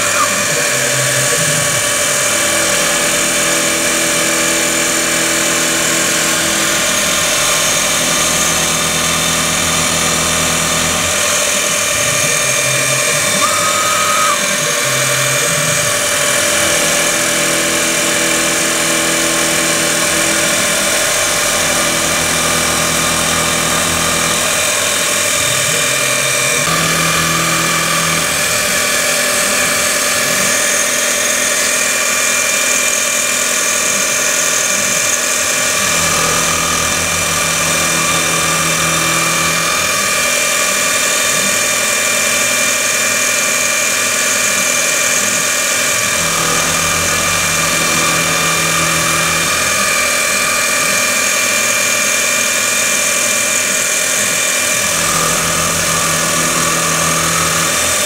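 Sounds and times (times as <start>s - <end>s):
milling machine spindle whine: 0.0s - 58.0s.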